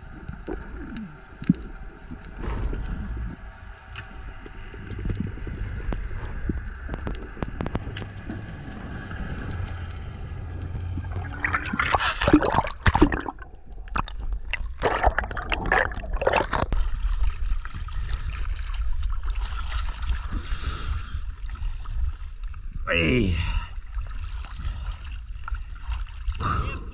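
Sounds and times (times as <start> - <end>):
low underwater rumble: 0.0 - 22.8
water gurgling and sloshing: 0.0 - 26.9
rushing bursts of water: 7.0 - 16.7.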